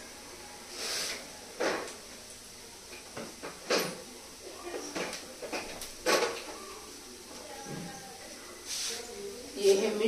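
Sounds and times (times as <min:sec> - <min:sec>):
short rush of hissing: 0:00.7 - 0:01.2.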